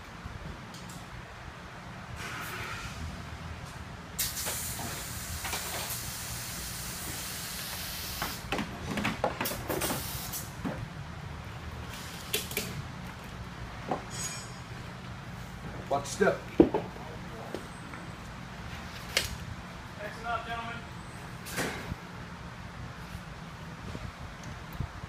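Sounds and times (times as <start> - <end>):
hiss: 4.2 - 8.5, 9.7 - 10.6.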